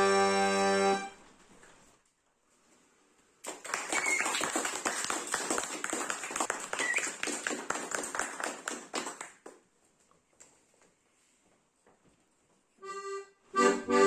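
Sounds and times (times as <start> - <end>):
applause: 3.4 - 9.7.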